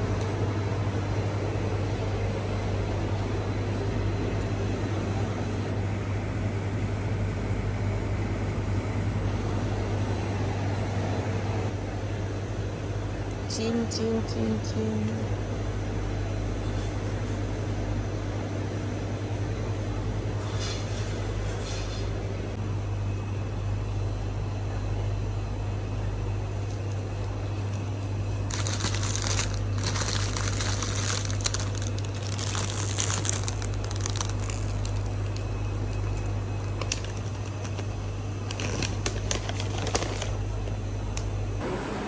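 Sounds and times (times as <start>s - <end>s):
steady low hum: 0.0s - 42.0s
plastic packets crinkling: 28.4s - 40.4s.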